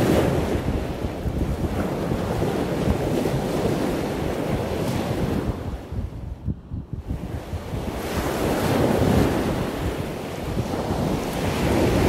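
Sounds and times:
ocean surf breaking on a beach: 0.0 - 12.0
wind buffeting the microphone: 0.0 - 12.0.

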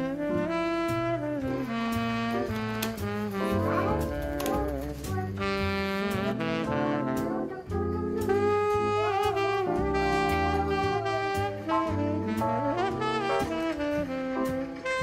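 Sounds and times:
instrumental jazz music: 0.0 - 15.0.

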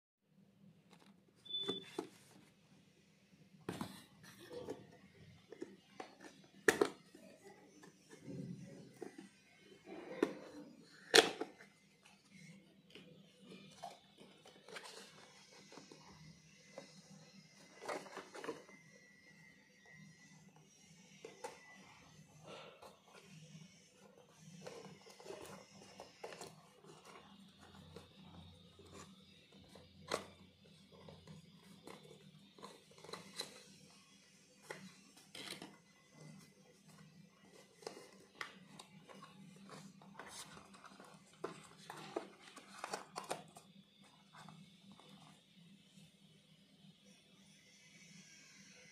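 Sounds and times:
cardboard scraping and rustling: 34.6 - 43.6.

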